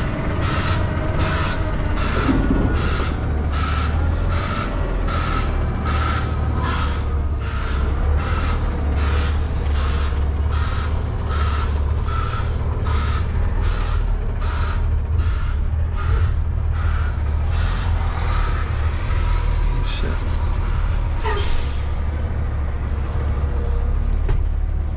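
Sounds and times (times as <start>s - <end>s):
truck reversing alarm beeping: 0.0s - 19.6s
diesel engine drone: 0.0s - 24.9s.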